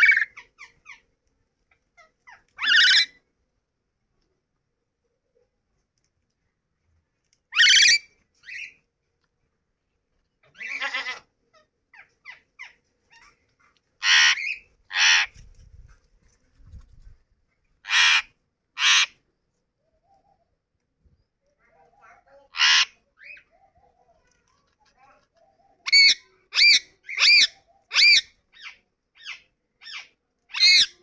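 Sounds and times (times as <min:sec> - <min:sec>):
parakeet harsh calls: 0:00.0 - 0:00.8, 0:02.3 - 0:03.2, 0:07.5 - 0:08.7, 0:10.5 - 0:11.2, 0:14.0 - 0:15.3, 0:17.8 - 0:19.2, 0:22.4 - 0:23.4, 0:25.9 - 0:31.0.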